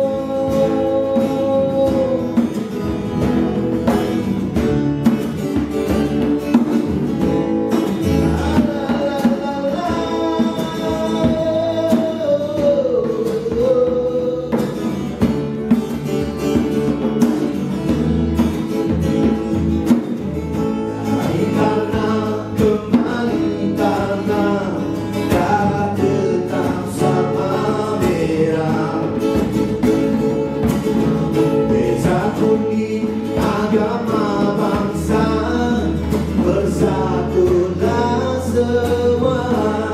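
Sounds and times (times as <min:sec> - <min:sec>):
man singing: 0:00.0 - 0:03.3, 0:06.2 - 0:15.4, 0:20.8 - 0:39.9
hand drum beating: 0:00.0 - 0:39.9
strummed acoustic guitar: 0:00.0 - 0:39.9.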